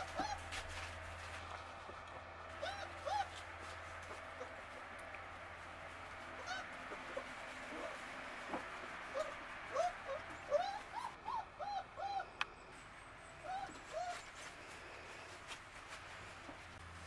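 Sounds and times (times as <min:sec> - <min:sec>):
puppies yipping: 0:00.0 - 0:00.8, 0:02.5 - 0:04.8, 0:06.3 - 0:12.4, 0:13.2 - 0:14.5.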